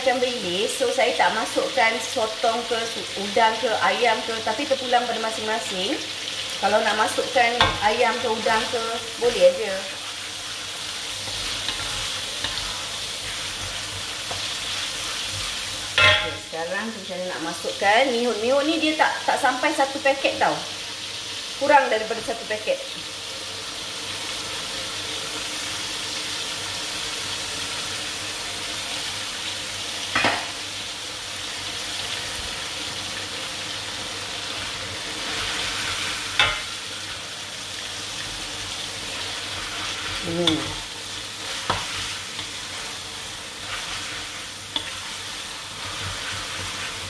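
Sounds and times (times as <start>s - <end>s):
sauce sizzling in a hot wok: 0.0s - 47.0s
noodles stirred with wooden spatula: 7.8s - 16.0s, 38.0s - 47.0s.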